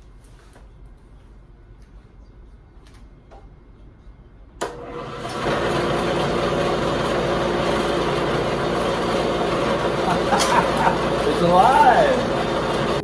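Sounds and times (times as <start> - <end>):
lathe motor whirring: 4.6 - 13.0.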